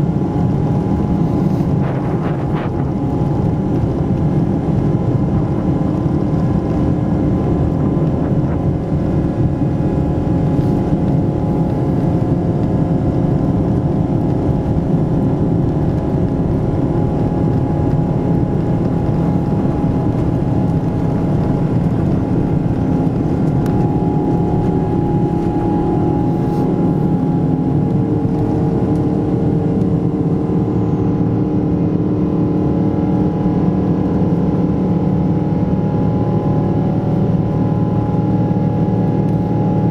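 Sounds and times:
rushing airflow: 0:00.0 - 0:13.8, 0:15.2 - 0:39.9
jet engines at high thrust: 0:00.0 - 0:39.9
steady cabin hums: 0:00.0 - 0:39.9.

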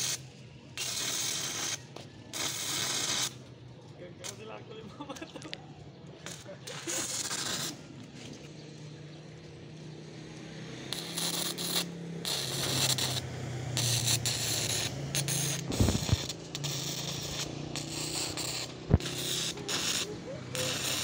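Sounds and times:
electric arc welding crackling hiss: 0:00.8 - 0:01.8, 0:02.4 - 0:03.4, 0:06.3 - 0:07.8, 0:10.9 - 0:21.0.

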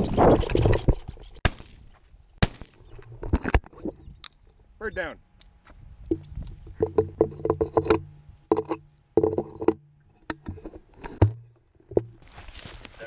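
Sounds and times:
microphone handling rumble: 0:00.0 - 0:01.9, 0:05.6 - 0:09.8
footsteps crunching on dry grass: 0:12.2 - 0:13.0.

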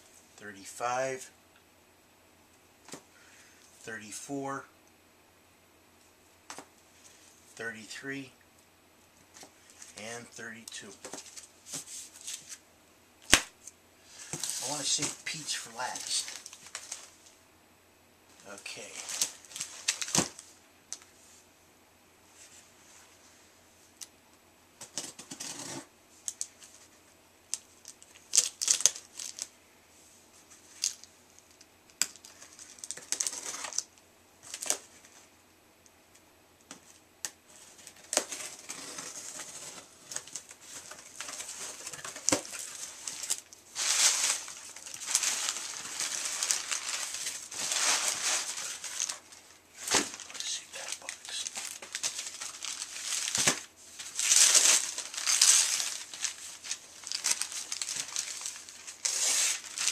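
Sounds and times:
packing material crinkling and tearing: 0:14.2 - 0:17.3, 0:18.6 - 0:20.4, 0:27.6 - 0:29.5, 0:30.6 - 0:35.1, 0:37.6 - 0:59.9.

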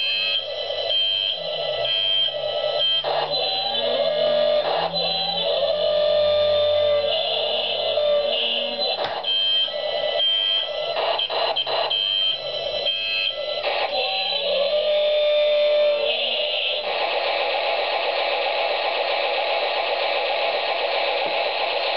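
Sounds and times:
electronic tones with pitch glides: 0:00.0 - 0:17.0.

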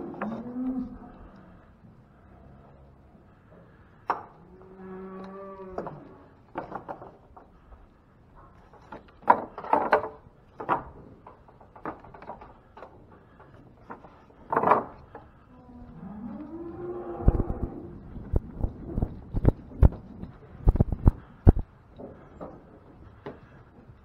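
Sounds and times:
cow mooing: 0:00.0 - 0:01.3, 0:04.4 - 0:06.2
wooden gates knocking and rattling: 0:05.7 - 0:07.6, 0:08.4 - 0:15.4.

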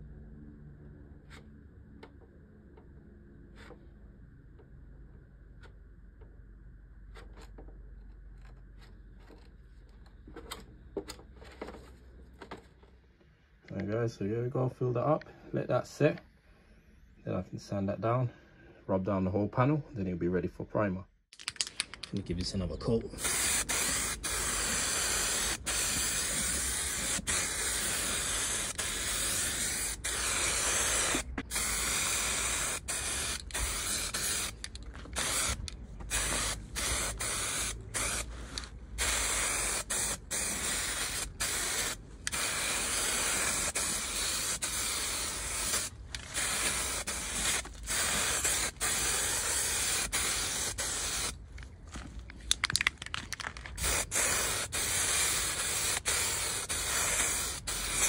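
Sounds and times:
aerosol spray can hissing: 0:23.2 - 0:51.4, 0:53.8 - 0:58.0.

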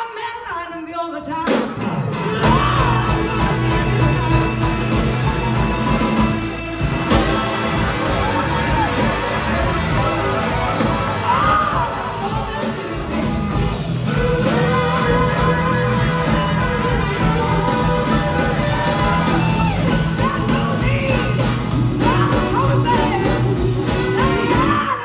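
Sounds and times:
blues-soul band playing: 0:01.4 - 0:25.0
woman singing: 0:02.2 - 0:06.0, 0:08.2 - 0:25.0.

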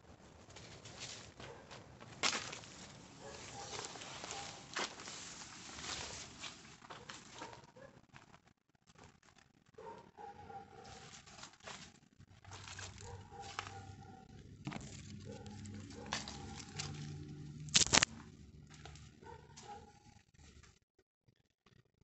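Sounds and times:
rustling of leafy plants: 0:00.0 - 0:08.3, 0:10.8 - 0:20.0.

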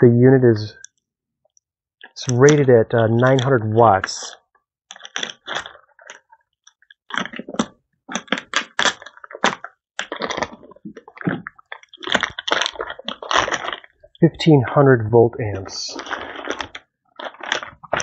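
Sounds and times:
plastic wrapping crinkling: 0:04.2 - 0:14.2, 0:16.0 - 0:18.0.

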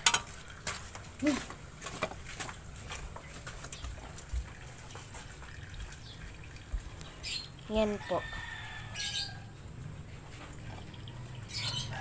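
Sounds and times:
rabbits clicking and rustling: 0:00.0 - 0:06.1.

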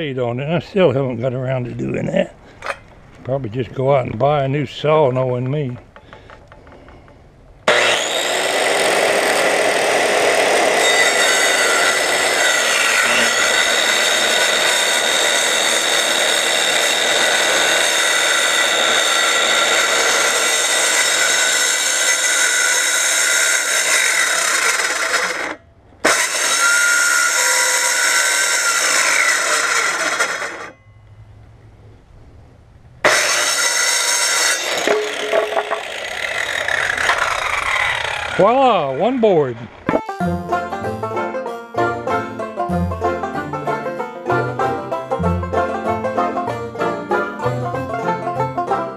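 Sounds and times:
circular saw cutting wood: 0:07.6 - 0:30.8, 0:33.0 - 0:41.4.

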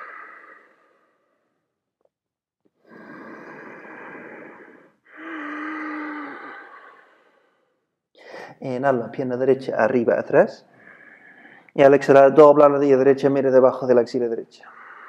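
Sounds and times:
person breathing deeply: 0:00.0 - 0:01.8, 0:02.8 - 0:08.6, 0:10.6 - 0:11.8, 0:14.6 - 0:15.0.

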